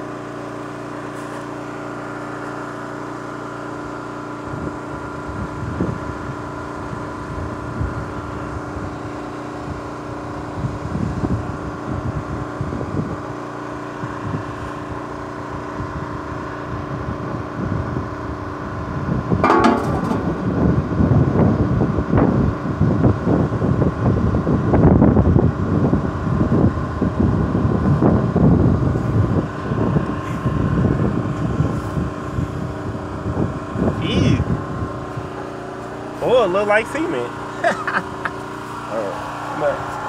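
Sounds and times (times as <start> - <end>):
engine running steadily: 0.0 - 40.0
wind buffeting microphone: 4.5 - 13.2, 15.6 - 36.4.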